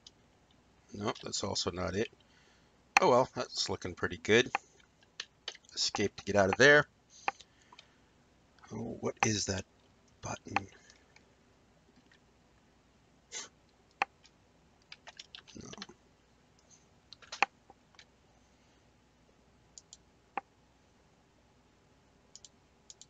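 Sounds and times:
computer mouse clicks: 19.8s - 20.5s, 22.3s - 23.0s.

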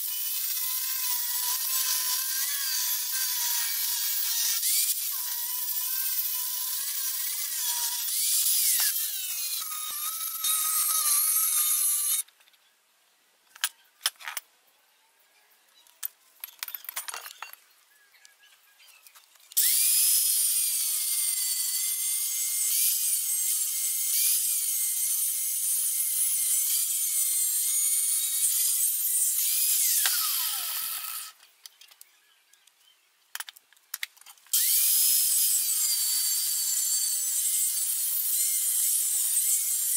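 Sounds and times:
angle grinder cutting metal: 0.0s - 12.2s, 19.6s - 31.4s, 34.5s - 39.9s.

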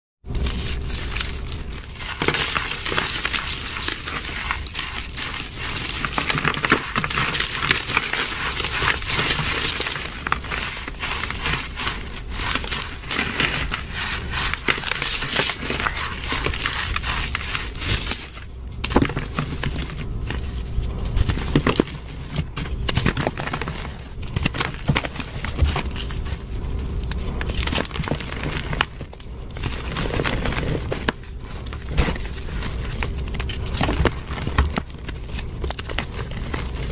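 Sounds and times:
chalk crunching in a hand: 0.3s - 28.5s.

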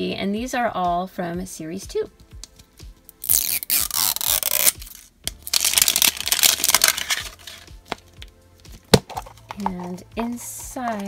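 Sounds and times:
plastic wrapper tearing and crinkling: 3.1s - 9.6s.

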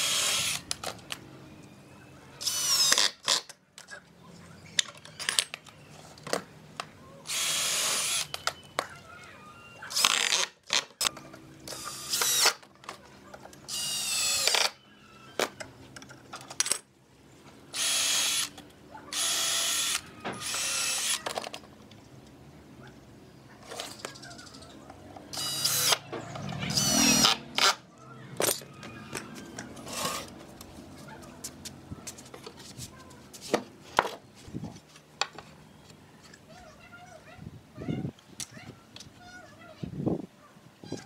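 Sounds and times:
cordless drill whining: 0.0s - 0.7s, 2.4s - 3.4s, 7.3s - 8.4s, 11.7s - 12.6s, 13.7s - 14.8s, 17.7s - 21.3s, 25.3s - 26.0s, 26.7s - 27.8s
clicks and knocks of wood and tools: 3.0s - 7.0s, 10.0s - 13.7s, 15.4s - 16.9s, 27.6s - 36.6s.

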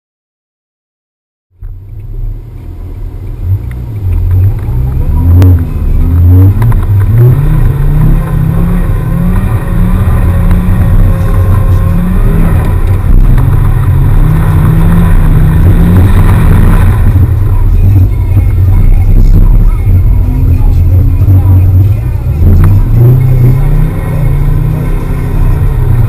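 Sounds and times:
car engine revving: 1.6s - 26.0s.

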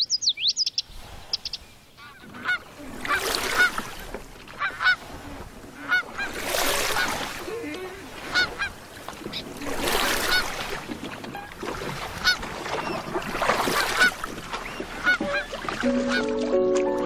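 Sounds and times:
geese honking: 2.0s - 3.8s, 4.6s - 5.1s, 5.8s - 6.4s, 8.3s - 9.4s, 10.2s - 10.5s, 12.2s - 13.0s, 14.8s - 17.0s.

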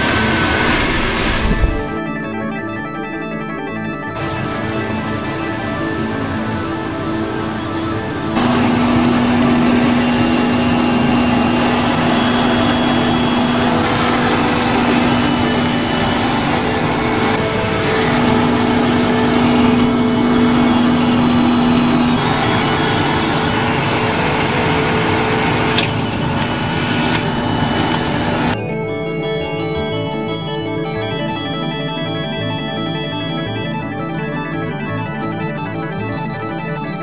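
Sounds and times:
electric blower rushing air: 0.0s - 2.0s, 4.2s - 5.8s, 8.4s - 28.6s.

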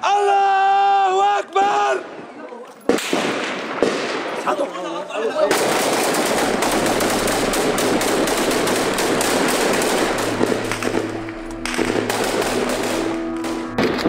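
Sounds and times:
automatic gunfire: 5.4s - 14.0s
music with low held notes: 6.4s - 14.0s.

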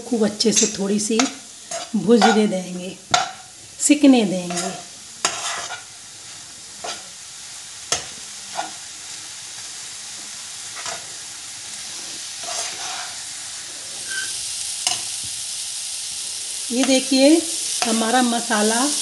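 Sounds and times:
vegetables sizzling in a pan: 0.0s - 19.0s
wooden spatula scraping a pan: 4.4s - 5.9s, 8.5s - 8.8s, 10.7s - 11.1s, 11.8s - 13.2s, 14.0s - 14.3s.

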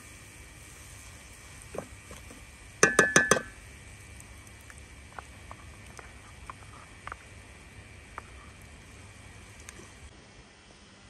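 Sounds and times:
spatula knocking on pot: 2.8s - 3.5s
stirring scrapes in pot: 5.1s - 7.4s.

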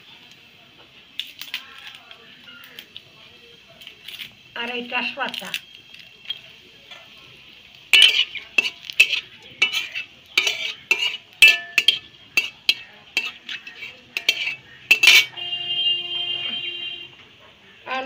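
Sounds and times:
metal spatula scraping a pan: 7.9s - 15.6s.

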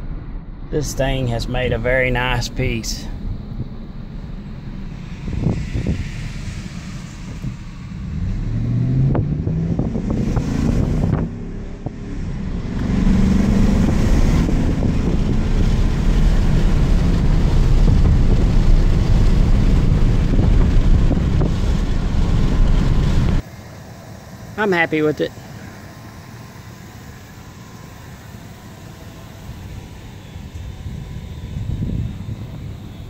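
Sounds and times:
truck engine accelerating: 0.0s - 23.4s, 24.6s - 33.0s
tyre and wind noise: 4.9s - 23.4s.

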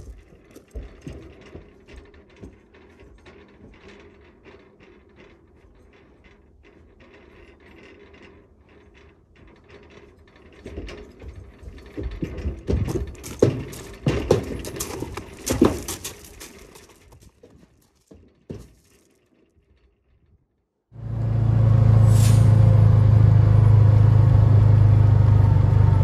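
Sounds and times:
hooves clomping on metal floor: 0.0s - 19.4s
trailer panels rattling: 0.0s - 19.8s
loud uneven knocks: 11.8s - 16.4s.

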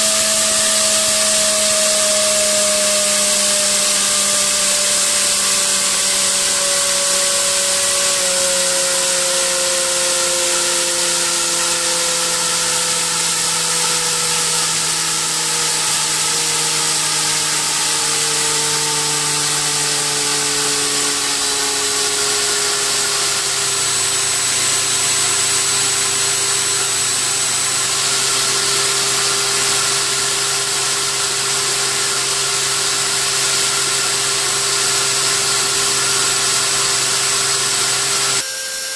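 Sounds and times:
electric motor whine: 0.0s - 38.9s.

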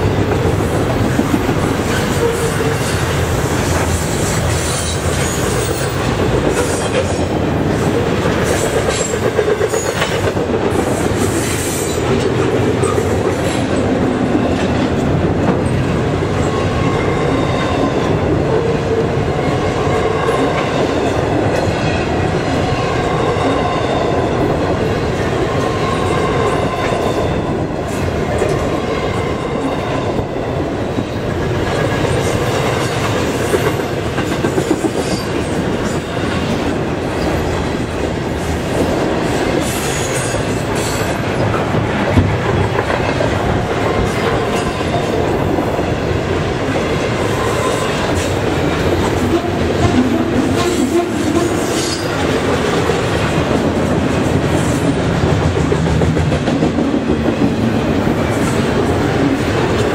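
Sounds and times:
freight train wheels rumbling: 0.0s - 59.9s.

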